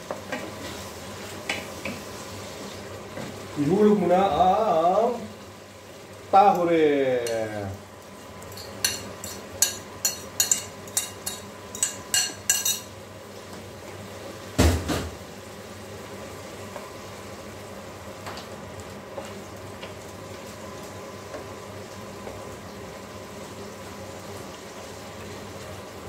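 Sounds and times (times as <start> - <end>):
utensils clinking on metal pan: 8.5 - 12.9
sauce simmering: 15.2 - 26.0.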